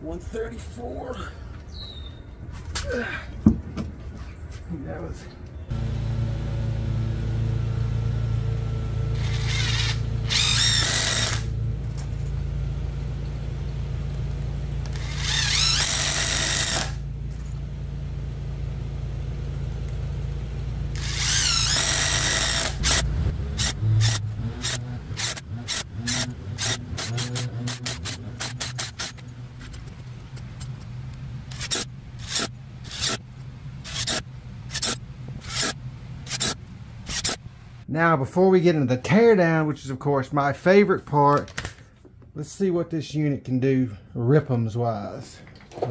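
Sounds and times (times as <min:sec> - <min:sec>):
steady low hum: 0:04.0 - 0:38.0
impact driver hammering with whine: 0:09.0 - 0:11.5, 0:14.8 - 0:17.0, 0:20.9 - 0:29.3.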